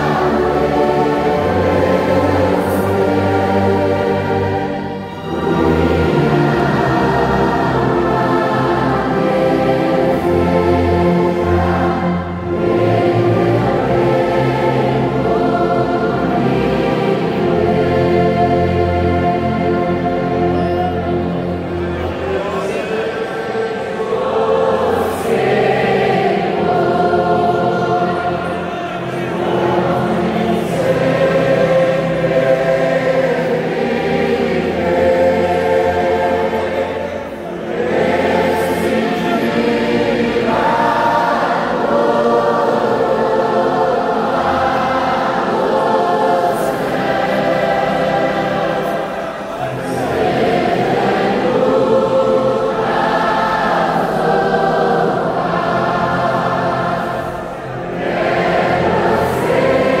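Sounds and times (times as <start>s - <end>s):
orchestra accompanying: 0.0s - 23.8s
congregation singing a hymn: 0.0s - 60.0s.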